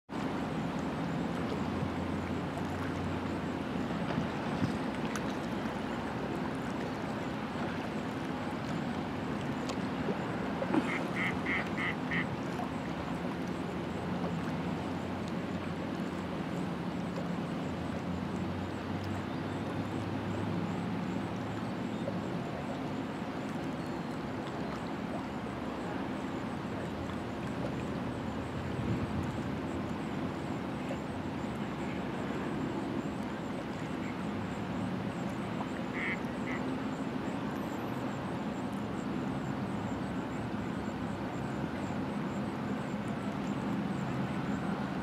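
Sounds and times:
distant motors humming: 0.2 - 45.0.

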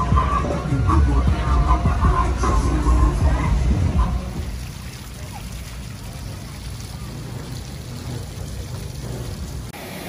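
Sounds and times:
steady low rumble: 0.0 - 9.8
fountain water splashing: 0.0 - 10.0.

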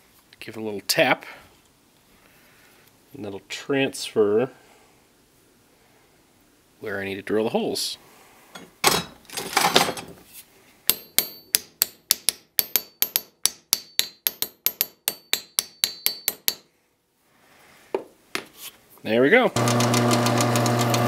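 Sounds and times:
small hammer tapping metal: 10.9 - 16.7.

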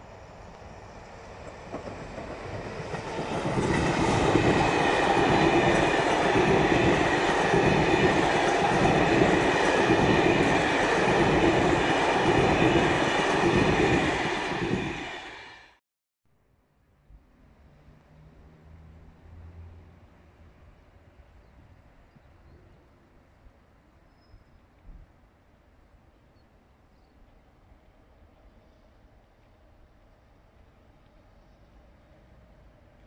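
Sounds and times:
train passing: 0.0 - 15.8.

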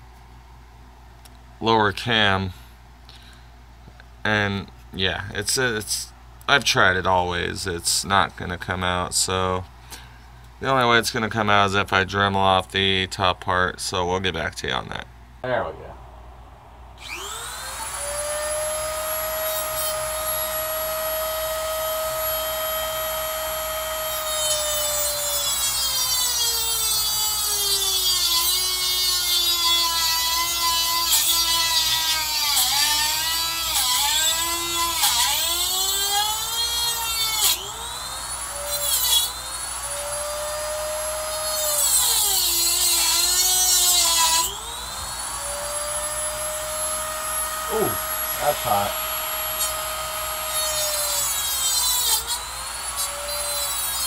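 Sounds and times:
rotary tool grinding metal: 17.0 - 54.0.

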